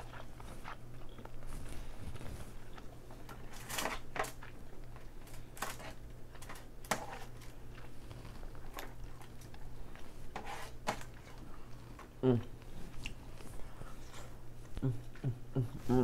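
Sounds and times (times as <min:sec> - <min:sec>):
chewing: 0:00.0 - 0:03.5, 0:07.2 - 0:16.0.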